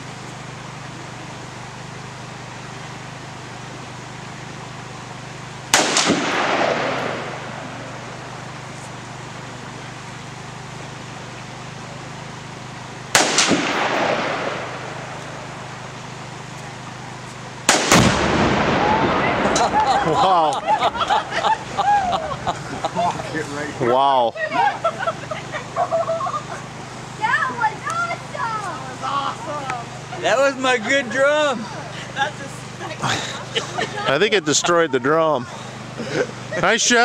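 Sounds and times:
steady low hum: 0.0s - 37.0s
rolling echo: 5.4s - 8.7s, 13.2s - 16.3s, 17.6s - 22.9s
rifle shots: 5.7s - 8.3s, 13.1s - 15.6s, 17.7s - 20.0s.

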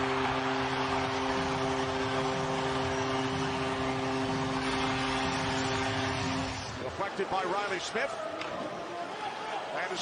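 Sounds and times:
crowd cheering: 0.0s - 10.0s.

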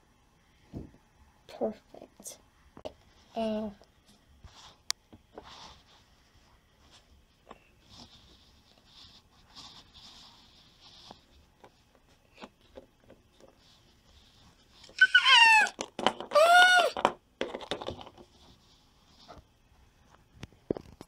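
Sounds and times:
high-pitched squealing cries: 14.9s - 17.0s.

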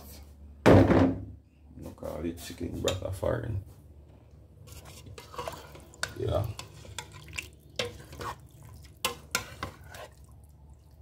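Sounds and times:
broth being poured: 4.6s - 9.1s
pot sizzling: 4.6s - 11.0s
spoon stirring: 4.6s - 11.0s.

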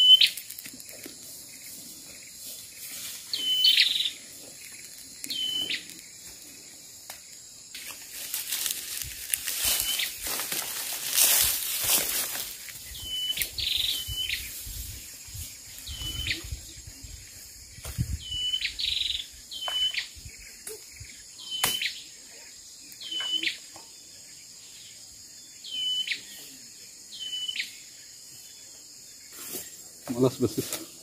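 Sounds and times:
bird whistled call: 0.0s - 0.4s, 3.3s - 4.2s, 5.3s - 5.8s, 13.0s - 14.5s, 15.9s - 16.5s, 21.4s - 22.0s, 23.0s - 23.6s.

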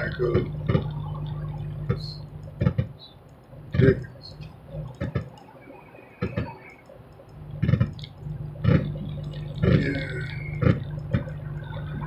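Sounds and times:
low engine hum: 0.0s - 12.0s
sharp clicks and knocks: 1.9s - 5.5s, 6.1s - 12.0s.

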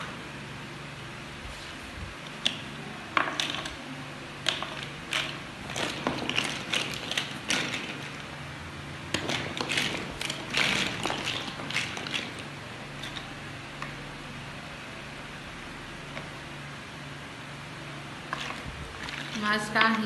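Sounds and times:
plastic bricks clattering and clicking: 3.2s - 3.8s, 4.4s - 8.2s, 9.1s - 13.2s.

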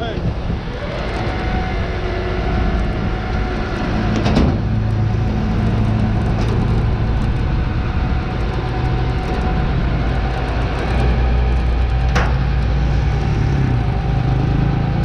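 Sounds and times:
tow truck engine droning: 0.0s - 15.0s.

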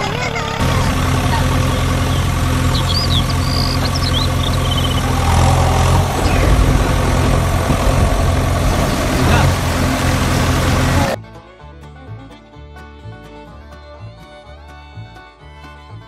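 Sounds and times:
engine idling: 0.0s - 11.2s.

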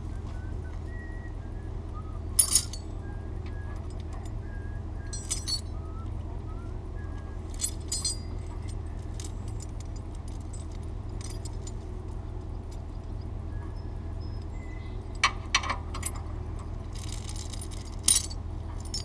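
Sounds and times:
steady low hum: 0.0s - 19.0s
metal hardware clinking: 2.4s - 2.9s, 5.1s - 5.7s, 7.5s - 11.8s, 16.9s - 19.0s.

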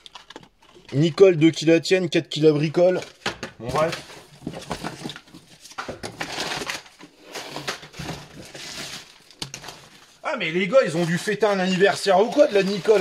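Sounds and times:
packing paper crinkling: 3.8s - 13.0s.

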